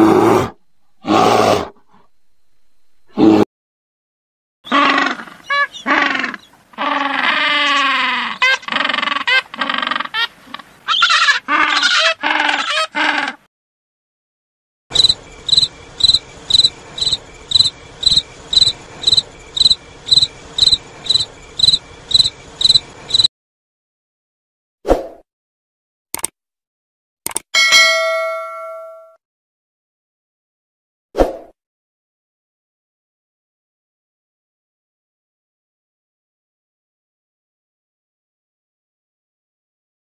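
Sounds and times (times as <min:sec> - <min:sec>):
penguins calling: 0:04.7 - 0:13.4
insect chirping: 0:14.9 - 0:23.3.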